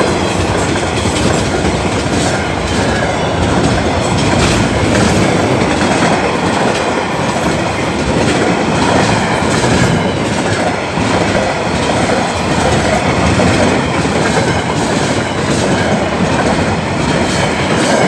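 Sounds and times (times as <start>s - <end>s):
train wagons rumbling: 0.0s - 18.0s
wheels clacking over rail joints: 0.0s - 18.0s.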